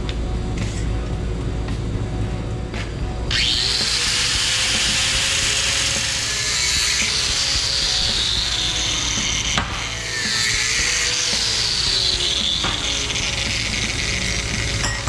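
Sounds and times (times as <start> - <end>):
angle grinder cutting steel: 3.3 - 15.0.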